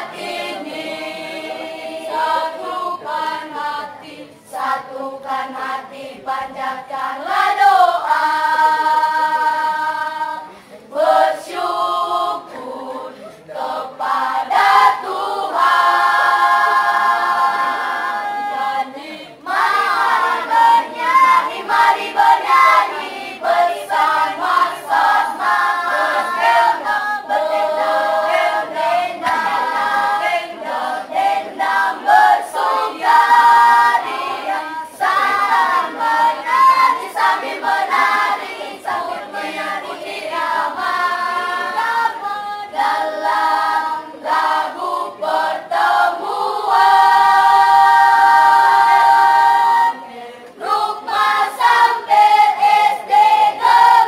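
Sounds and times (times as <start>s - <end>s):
children's choir singing unaccompanied: 0.0s - 54.0s.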